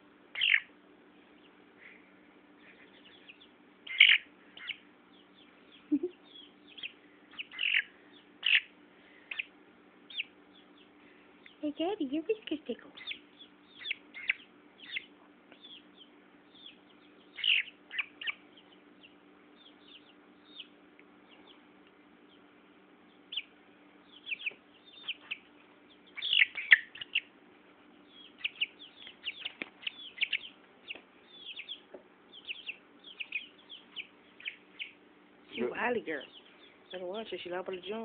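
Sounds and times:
chick peeping: 0.3s - 2.0s, 2.6s - 38.0s
chick squealing: 0.4s - 0.7s, 3.9s - 4.8s, 6.1s - 8.7s, 17.3s - 18.4s, 26.1s - 27.3s.

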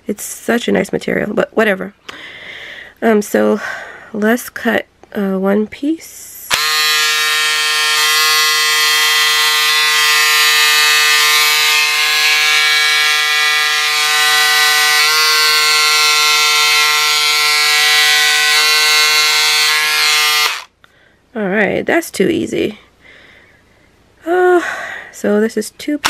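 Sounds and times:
electric scissors motor whine: 6.5s - 20.7s.

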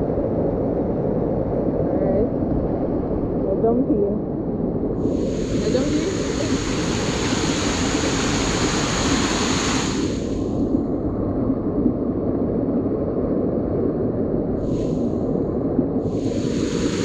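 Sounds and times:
wind buffeting microphone: 0.0s - 17.0s
river flowing hiss: 5.0s - 10.7s, 14.6s - 15.4s, 16.0s - 17.0s.

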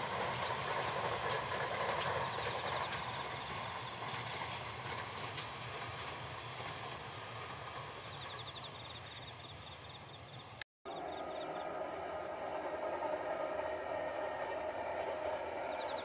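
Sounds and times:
distant freight train rumble: 0.0s - 16.0s
insects chirping: 2.0s - 16.0s
high insect drone: 8.3s - 16.0s.

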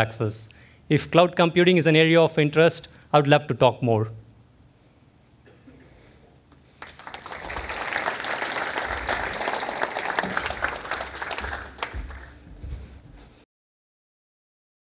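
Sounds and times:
audience applauding: 6.8s - 12.6s.

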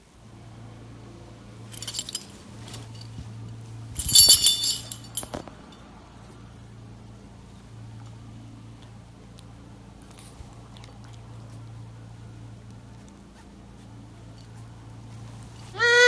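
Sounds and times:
metal collar tag jingling: 1.7s - 5.8s.

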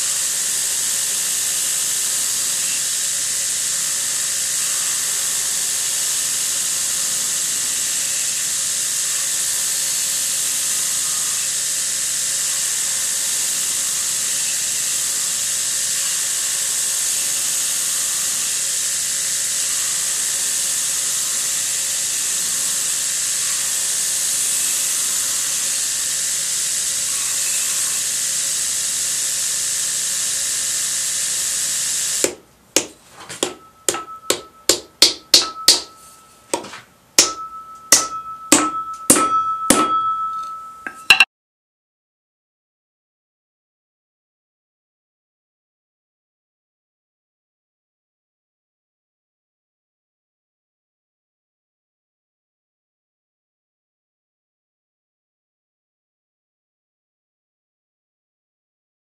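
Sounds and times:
belt grinder sanding wood: 0.0s - 41.1s.

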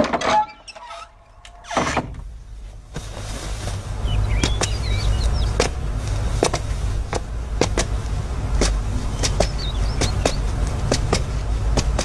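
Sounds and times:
birds chirping: 3.7s - 12.0s.

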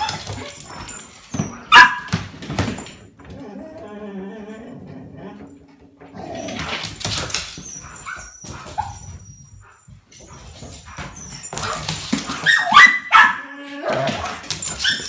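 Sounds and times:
dogs whining: 0.0s - 15.0s
dog yelps: 1.6s - 2.2s, 7.6s - 9.8s, 10.9s - 15.0s.

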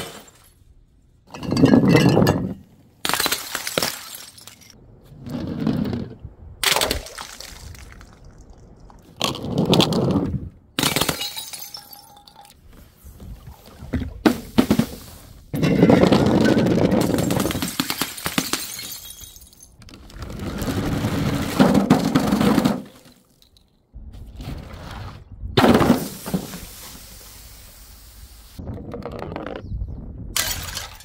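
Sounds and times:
glass jars smashing: 1.3s - 4.8s, 10.8s - 12.5s, 15.6s - 19.8s, 30.4s - 31.0s.

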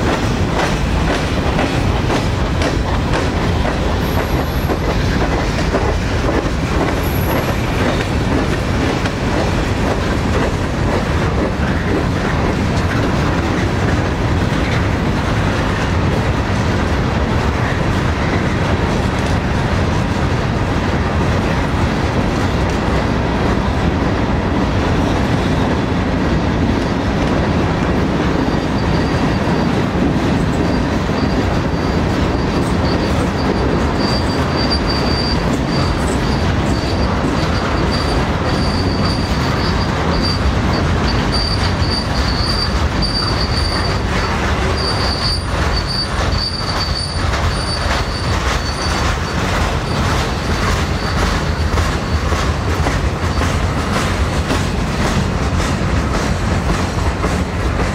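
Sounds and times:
steel wheels rumbling on track: 0.0s - 57.9s
high wheel squeal: 28.4s - 29.8s, 30.5s - 52.6s.

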